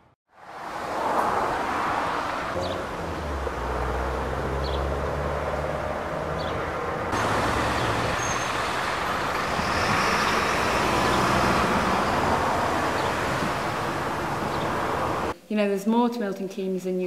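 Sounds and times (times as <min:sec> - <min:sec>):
passing road traffic: 0:00.0 - 0:15.4.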